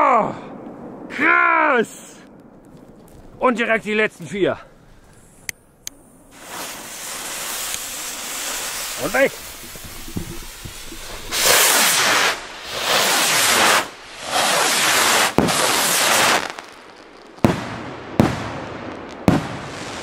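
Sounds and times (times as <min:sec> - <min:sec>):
firework bangs: 0:00.5 - 0:20.0
firework rockets whooshing: 0:04.8 - 0:20.0.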